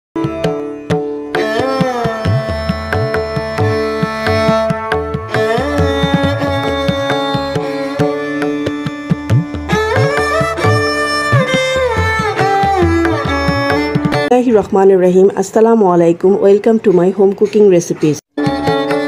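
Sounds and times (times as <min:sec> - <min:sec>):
hand drum rhythm: 0:00.2 - 0:14.4
sliding string notes: 0:00.2 - 0:14.4, 0:18.4 - 0:19.0.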